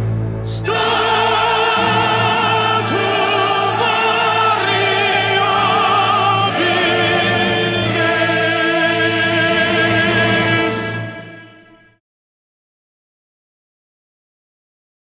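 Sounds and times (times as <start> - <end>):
operatic singing with vibrato: 0.4 - 12.0.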